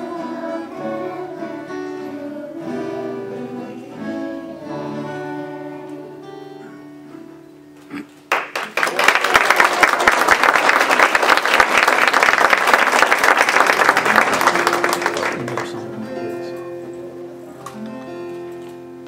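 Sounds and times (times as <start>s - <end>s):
guitar notes: 0.0s - 8.1s, 13.9s - 19.0s
audience clapping: 8.1s - 16.4s.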